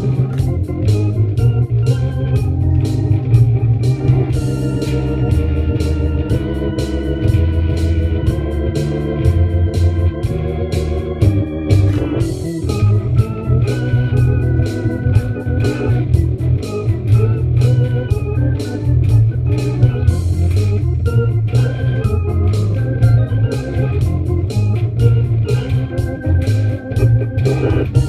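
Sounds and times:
bass line: 0.0s - 28.0s
jazz guitar: 0.0s - 28.0s
organ-toned keyboard: 0.0s - 28.0s
steady drum beat: 0.0s - 28.0s.

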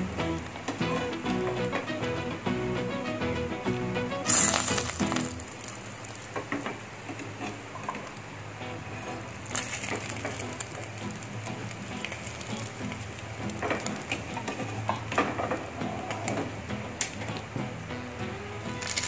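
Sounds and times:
oil crackling: 3.7s - 19.0s
meat deep-frying in oil: 4.2s - 19.0s.

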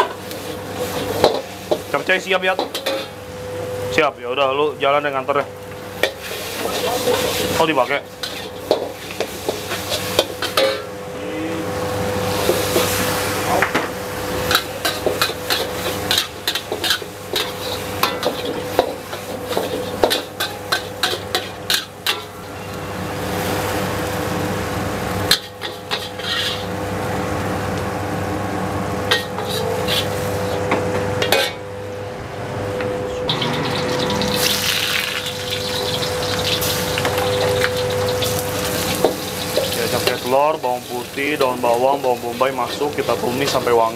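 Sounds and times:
food sizzling in oil: 0.0s - 4.0s, 5.5s - 11.0s, 11.7s - 28.2s, 28.8s - 31.5s, 33.3s - 43.9s
mechanical hum: 0.0s - 43.9s
metal spatula scraping a wok: 6.0s - 7.6s, 8.2s - 10.9s, 14.8s - 22.4s, 25.3s - 26.7s, 29.1s - 30.6s.

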